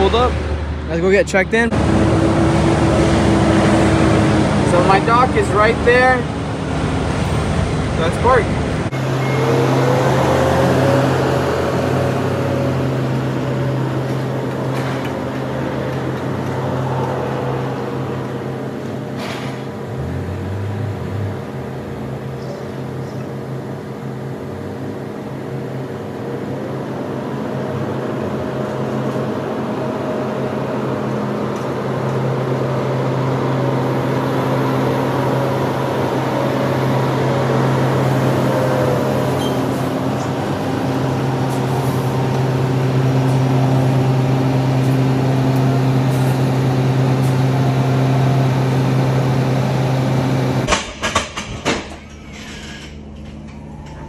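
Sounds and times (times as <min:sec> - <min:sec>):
diesel truck engine running: 0:00.0 - 0:52.3
pallet jack metal clanks: 0:50.6 - 0:54.0.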